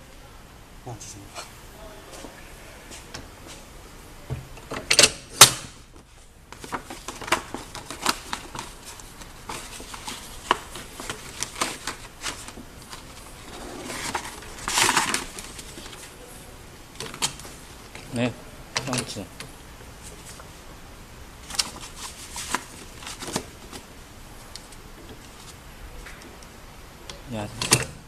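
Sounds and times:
paper rustling scrape: 6.5 - 16.2, 21.4 - 23.8.

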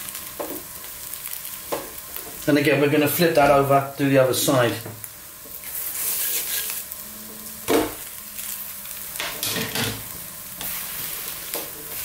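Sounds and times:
food sizzling in oil: 0.0 - 12.0
spatula scraping pan: 5.6 - 7.0.

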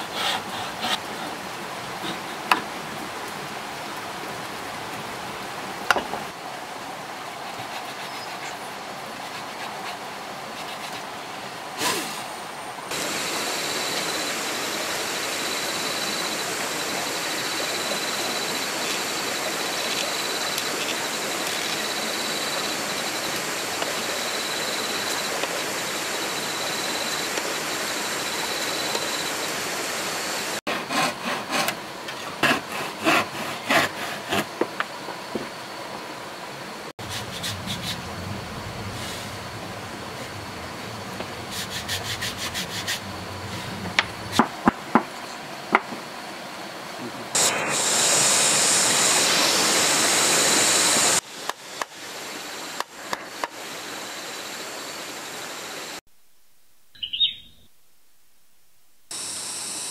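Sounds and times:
hand saw cutting wood: 0.0 - 1.4, 30.7 - 34.5
background hiss: 0.0 - 30.6, 34.5 - 59.9
faint high whine: 11.4 - 30.6, 45.2 - 59.9.

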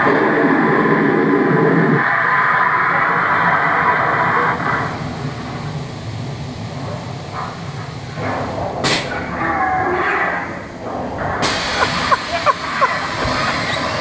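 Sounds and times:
steady rumbling ambience: 0.0 - 14.0
air hiss: 11.4 - 14.0.

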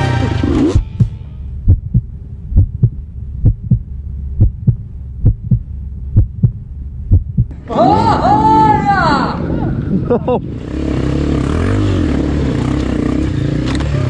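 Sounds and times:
heartbeat thumps: 0.5 - 7.5
faint low hum: 0.8 - 7.6.

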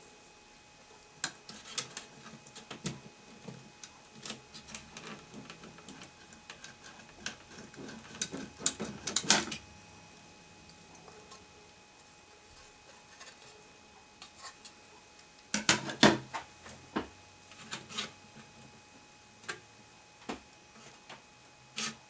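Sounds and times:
circuit boards clicking and scraping: 1.2 - 9.7, 12.5 - 13.6, 17.5 - 18.6, 20.7 - 22.0.

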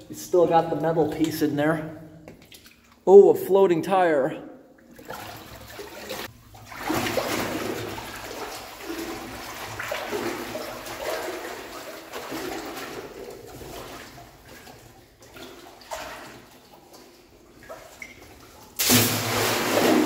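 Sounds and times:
boots wading through water: 4.9 - 18.8.

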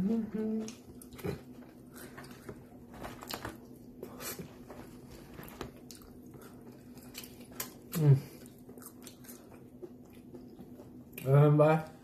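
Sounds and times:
faint steady hum: 0.0 - 12.0
man chewing food: 0.1 - 12.0.

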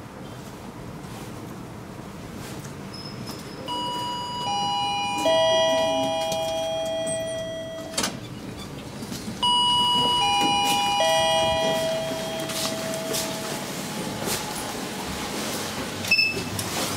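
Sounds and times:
elevator chime: 3.6 - 8.2, 9.4 - 15.4.

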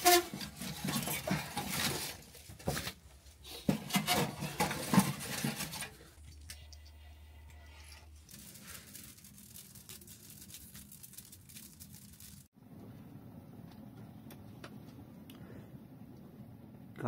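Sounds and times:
dry grass and twigs crackling: 8.1 - 12.5.

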